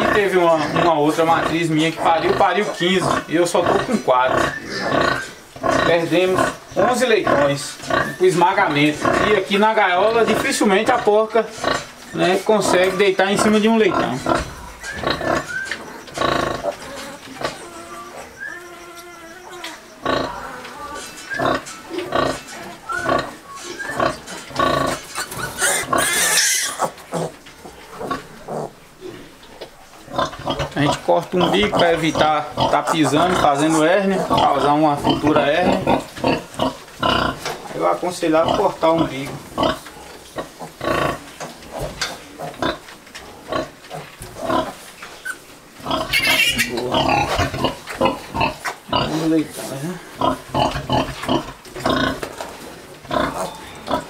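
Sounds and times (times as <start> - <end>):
piglets squealing: 0.0 - 9.8, 10.8 - 27.4, 44.5 - 49.2
pigs grunting: 0.0 - 54.0.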